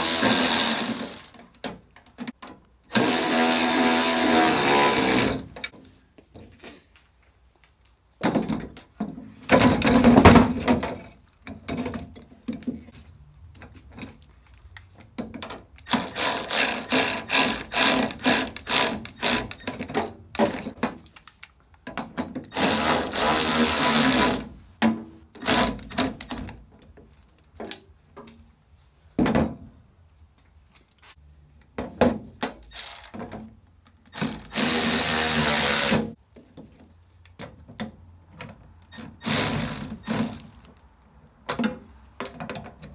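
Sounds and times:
cordless ratchet motor running: 0:34.2 - 0:36.0.

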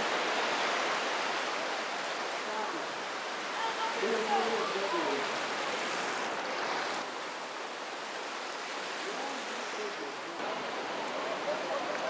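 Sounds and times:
waves breaking on a beach: 0:00.0 - 0:12.0.

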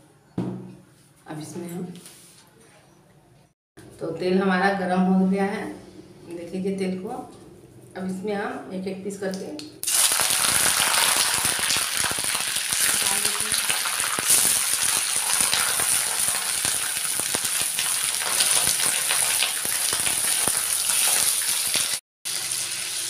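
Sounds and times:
chicken sizzling in hot oil: 0:09.8 - 0:23.0.

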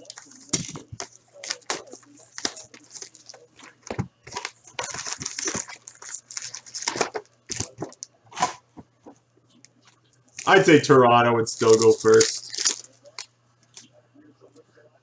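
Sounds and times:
cardboard and wrappers crinkling: 0:00.0 - 0:08.0, 0:10.4 - 0:10.6, 0:11.5 - 0:13.3.

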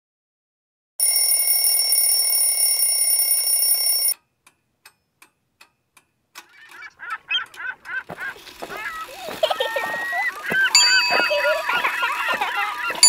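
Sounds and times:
alarm clock ringing: 0:01.0 - 0:04.2, 0:08.8 - 0:13.0
clock ticking: 0:01.0 - 0:13.0.

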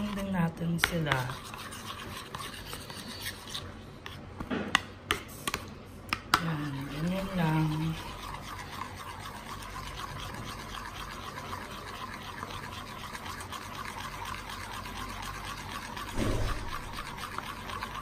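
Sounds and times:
spoon stirring thick dressing: 0:00.0 - 0:18.0
dull thump: 0:16.2 - 0:16.9.

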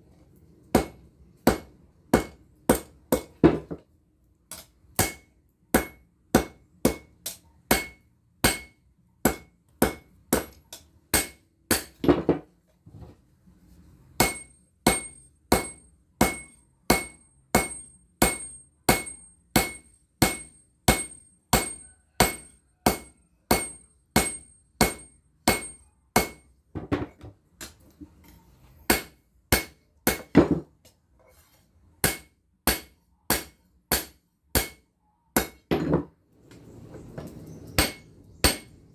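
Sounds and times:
hammer striking blade on anvil: 0:04.5 - 0:11.9, 0:32.0 - 0:34.8, 0:37.8 - 0:38.7.

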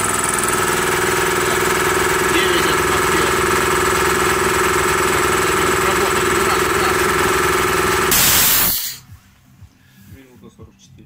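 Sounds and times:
air compressor humming: 0:00.0 - 0:09.3
air hiss: 0:08.1 - 0:09.1.

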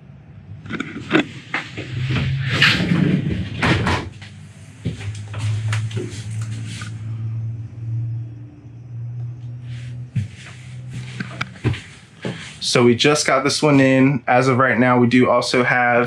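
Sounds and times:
steady low hum: 0:00.0 - 0:16.0
knocks and clicks: 0:00.6 - 0:06.5.

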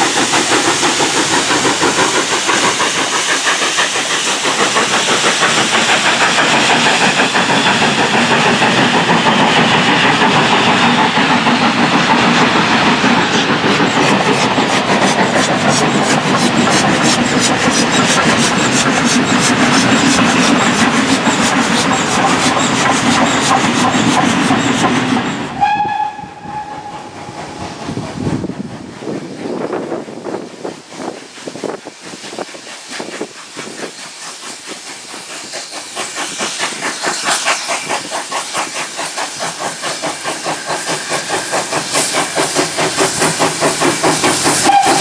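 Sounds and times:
wheels clacking over rail joints: 0:00.0 - 0:25.4
train rushing past: 0:00.0 - 0:45.0
steam locomotive whistle: 0:25.4 - 0:27.4, 0:44.5 - 0:45.0.

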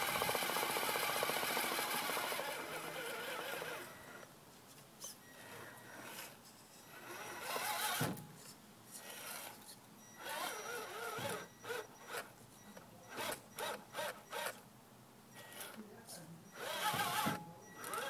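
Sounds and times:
toy car motor whining: 0:00.0 - 0:04.3, 0:05.0 - 0:08.1, 0:09.0 - 0:09.6, 0:10.2 - 0:12.3, 0:13.1 - 0:14.6, 0:15.4 - 0:15.8, 0:16.5 - 0:18.0.

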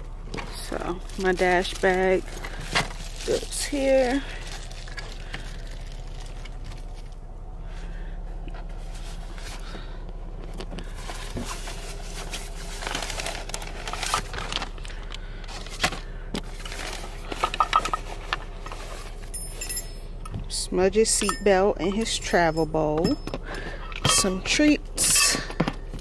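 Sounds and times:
rustling and scraping of items: 0:00.0 - 0:26.0
small clinks: 0:19.3 - 0:20.3.

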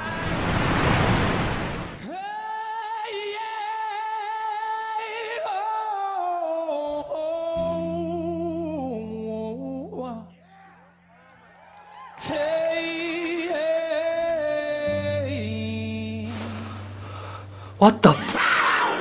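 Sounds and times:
steady low drone: 0:15.0 - 0:18.0
rushing hiss: 0:16.2 - 0:17.7.

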